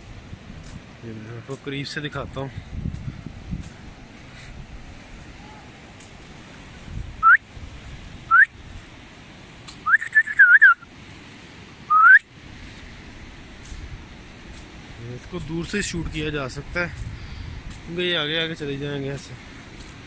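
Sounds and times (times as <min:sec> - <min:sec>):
person whistling: 0:07.2 - 0:07.4, 0:08.3 - 0:08.5, 0:09.8 - 0:10.8, 0:11.9 - 0:12.3.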